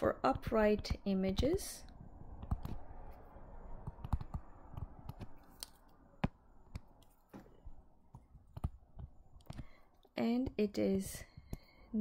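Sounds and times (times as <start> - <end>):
stylus tapping on tablet screen: 2.4 - 2.8, 3.8 - 9.8.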